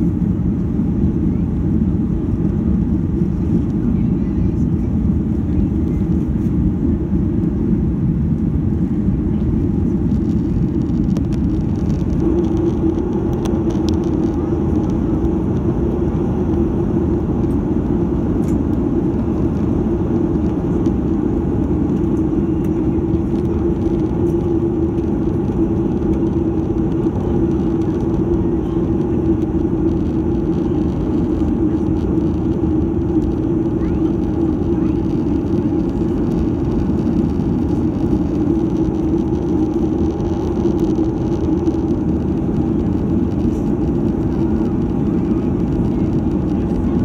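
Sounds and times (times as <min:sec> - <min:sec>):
jet engine drone: 0:00.0 - 0:47.0
low hum: 0:00.0 - 0:47.0
rushing air: 0:06.2 - 0:46.8.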